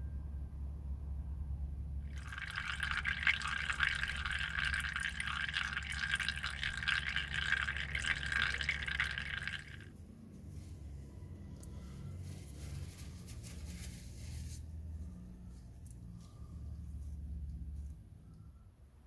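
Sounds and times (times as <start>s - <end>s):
oil stream splashing into pan: 2.1s - 9.8s.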